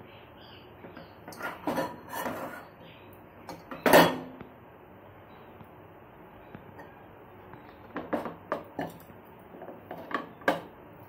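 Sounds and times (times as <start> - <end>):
saucepan scraping knocks: 7.9 - 9.0.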